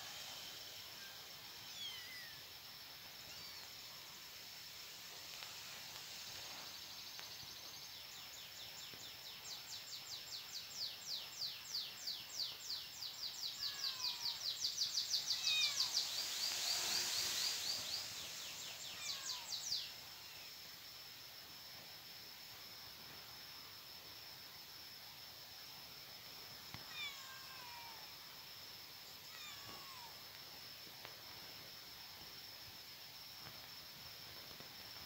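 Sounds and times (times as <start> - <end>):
faint high whine: 0.0 - 35.0
high chirping calls: 13.3 - 20.0.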